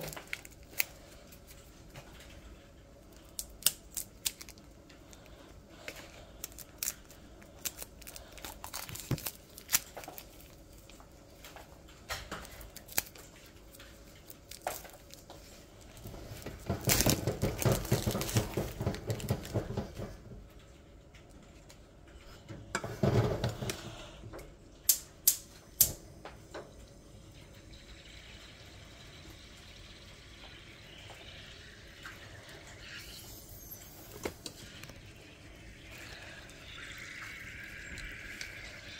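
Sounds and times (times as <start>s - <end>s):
plastic wrap crinkling: 0.0s - 2.4s, 3.0s - 19.9s.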